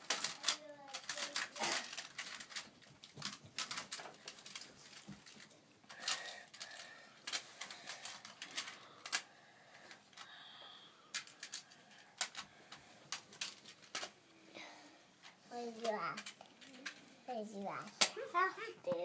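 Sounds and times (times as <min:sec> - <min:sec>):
plastic tiles clicking together: 0:00.0 - 0:09.2, 0:11.1 - 0:14.1.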